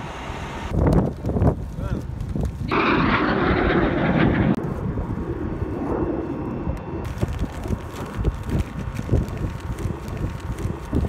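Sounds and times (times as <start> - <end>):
fighter jet engine roar: 2.7 - 11.0.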